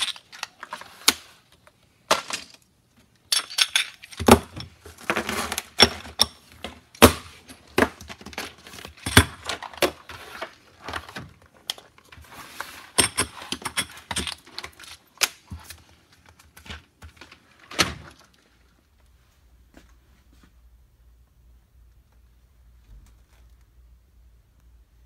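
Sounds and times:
brass cartridges clinking: 3.3 - 4.2.

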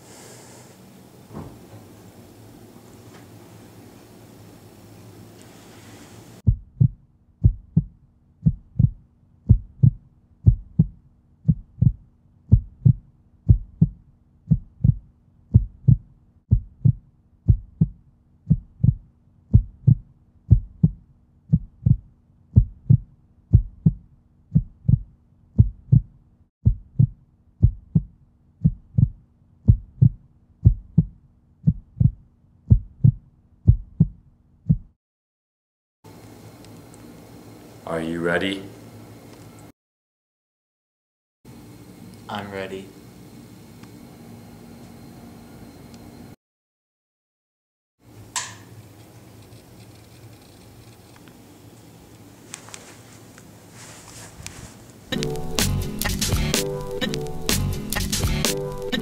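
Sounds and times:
heartbeat double thump: 6.5 - 35.0.

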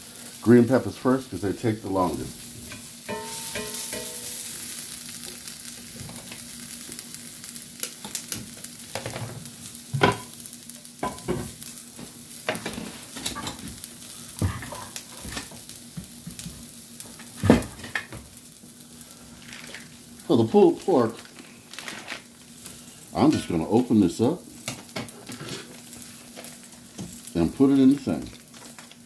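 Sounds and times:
peppers sizzling in a skillet: 0.0 - 29.0.

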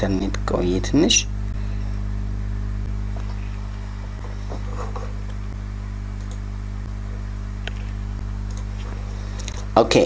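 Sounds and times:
electrical mains hum: 0.0 - 10.0
computer mouse clicks: 6.2 - 6.4, 8.5 - 8.7.

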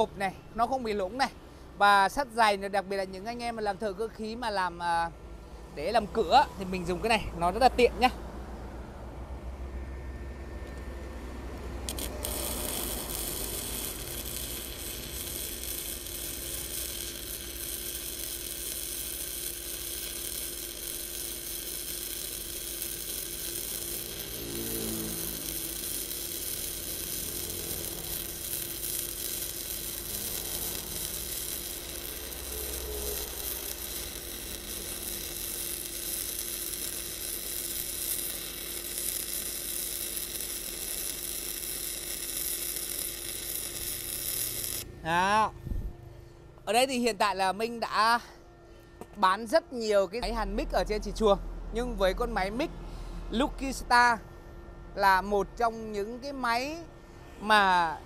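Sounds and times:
welding arc on steel plate: 11.6 - 45.5.

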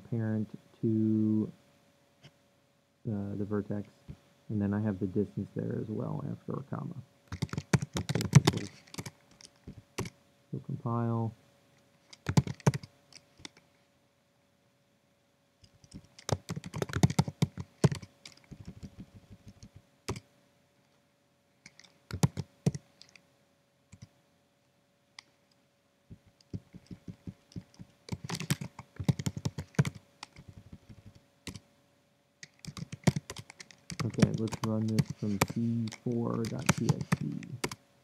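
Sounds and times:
computer keyboard typing: 7.3 - 10.2, 12.1 - 13.6, 15.6 - 20.2, 21.6 - 23.2, 23.9 - 24.1, 26.1 - 31.6, 32.4 - 37.8.

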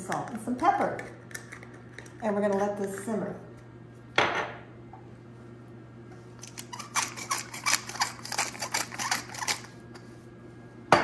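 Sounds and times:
pepper mill grinding clicks: 6.4 - 9.7.

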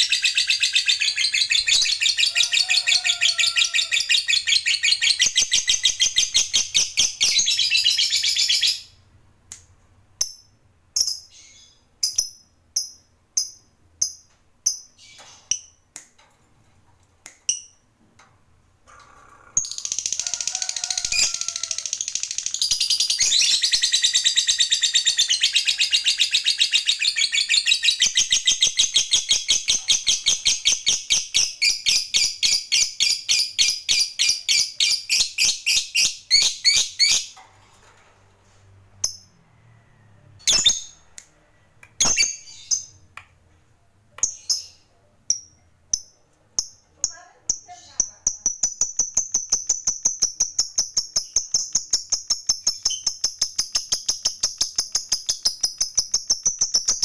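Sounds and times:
lovebird long chattering song: 20.8 - 37.3
sharp bird chirps: 42.0 - 43.0.

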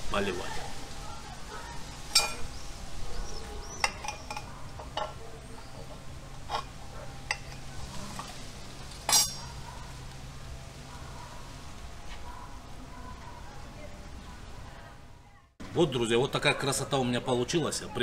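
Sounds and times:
knife clinking on platter: 9.0 - 9.6.

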